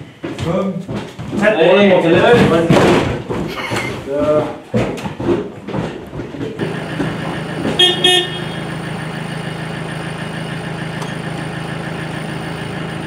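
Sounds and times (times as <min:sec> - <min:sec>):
truck engine idling: 0:06.6 - 0:13.0
truck horn double toot: 0:07.6 - 0:08.8.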